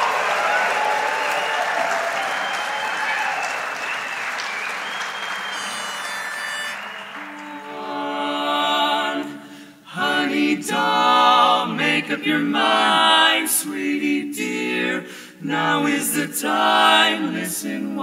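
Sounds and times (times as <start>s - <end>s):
audience applause: 0.0s - 7.9s
whistling: 0.1s - 7.6s
men singing in close harmony: 7.7s - 18.0s.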